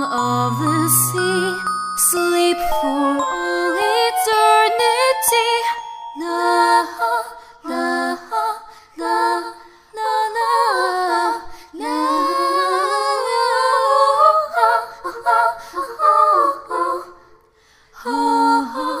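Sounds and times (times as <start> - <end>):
woman singing slowly: 0.0 - 5.8.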